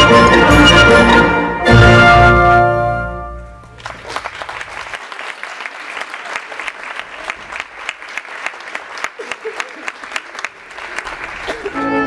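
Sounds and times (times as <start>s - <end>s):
orchestral ballet music: 0.0s - 4.1s, 11.5s - 12.0s
audience applauding: 3.6s - 12.0s.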